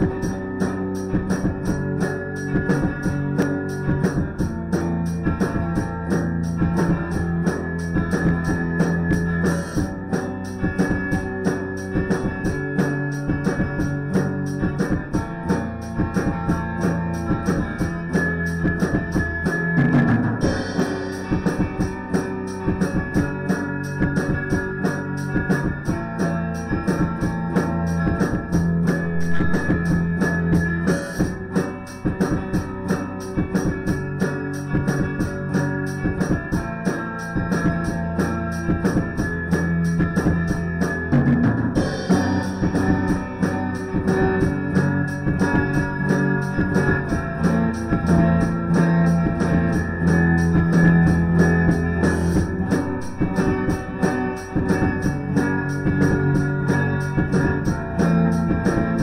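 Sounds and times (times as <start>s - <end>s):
drum kit beat: 0.0s - 59.0s
band playing a song: 37.6s - 59.0s.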